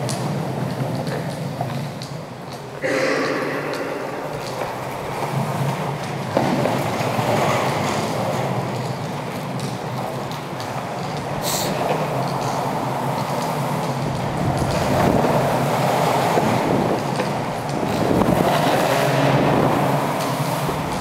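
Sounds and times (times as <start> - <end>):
wheels clacking over joints: 0.0 - 2.8, 3.5 - 21.0
longboard wheels rumbling on concrete: 0.0 - 21.0.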